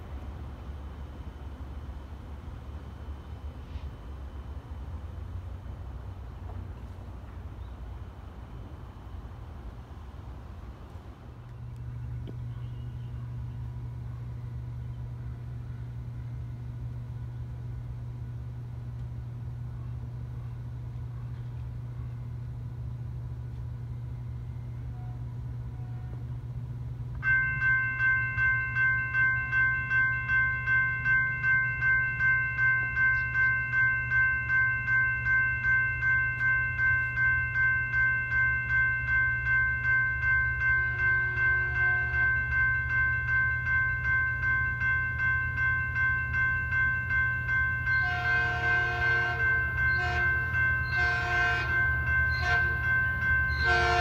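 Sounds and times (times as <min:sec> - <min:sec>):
crossing warning bell ringing: 0:11.5 - 0:54.0
faint train horn: 0:12.1 - 0:16.6, 0:24.1 - 0:26.4, 0:41.0 - 0:42.4, 0:47.9 - 0:54.0.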